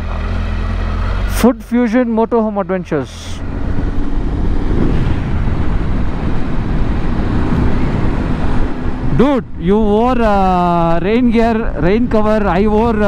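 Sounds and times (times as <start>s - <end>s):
motorcycle engine running: 0.0s - 9.2s
wind noise on microphone: 3.4s - 13.0s.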